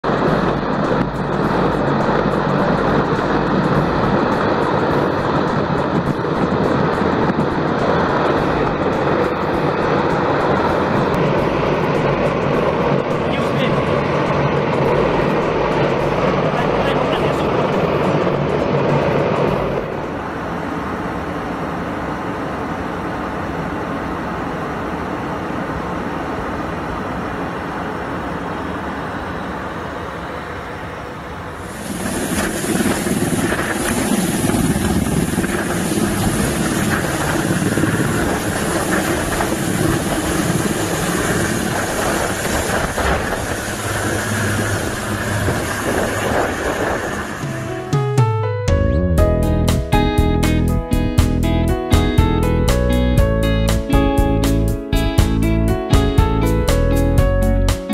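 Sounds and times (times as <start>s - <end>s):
helicopter rotor and engine: 0.0s - 48.1s
airliner cabin noise: 0.0s - 57.9s.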